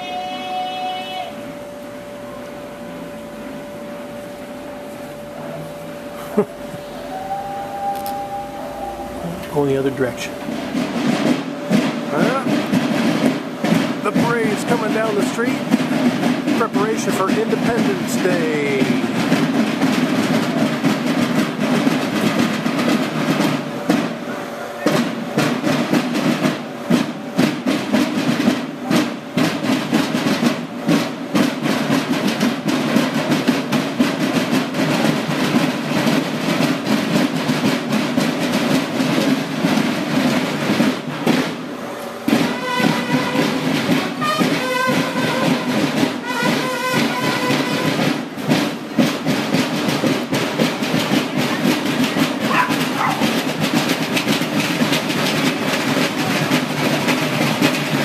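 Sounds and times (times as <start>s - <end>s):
short pitched notes: 0.0s - 11.0s
marching band drums: 0.0s - 58.0s.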